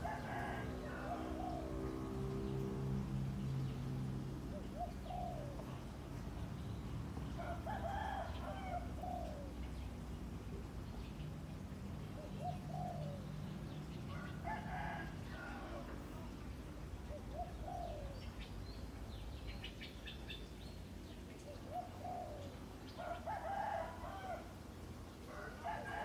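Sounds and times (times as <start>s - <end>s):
roosters crowing: 0.0s - 2.8s, 7.4s - 9.2s, 14.1s - 16.1s, 23.0s - 24.6s, 25.3s - 26.0s.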